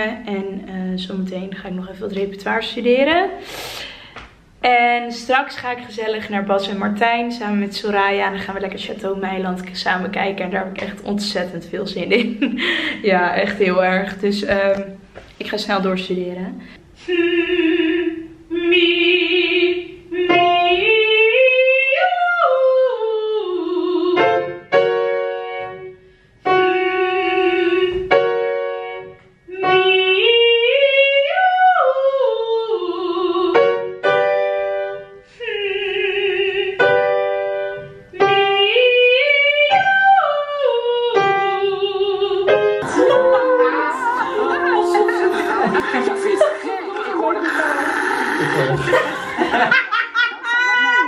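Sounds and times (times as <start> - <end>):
woman singing vocal exercises: 0.0 - 24.2, 26.6 - 28.1, 29.5 - 33.6, 35.4 - 37.0, 38.1 - 48.9
piano notes: 36.2 - 47.5.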